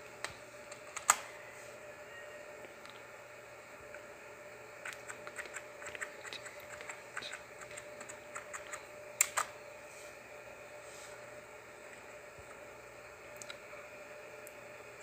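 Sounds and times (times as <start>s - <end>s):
keyboard typing: 4.8s - 9.5s
loud keyboard clicks: 4.8s - 9.5s.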